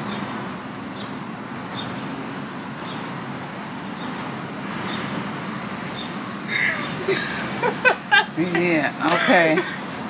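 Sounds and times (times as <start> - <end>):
passing cars: 0.0 - 10.0
person laughing: 6.5 - 9.9.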